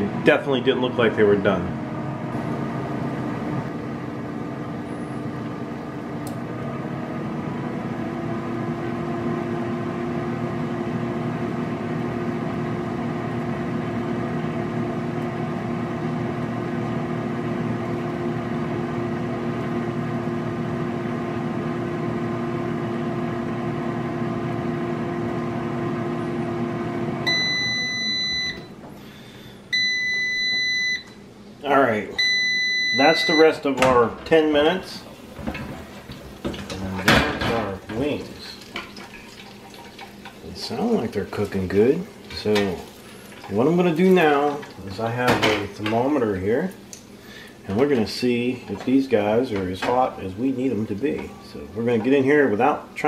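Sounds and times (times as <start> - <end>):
air fryer fan humming: 0.0 - 53.0
high steady beep: 27.3 - 28.7, 29.7 - 31.1, 32.2 - 33.6.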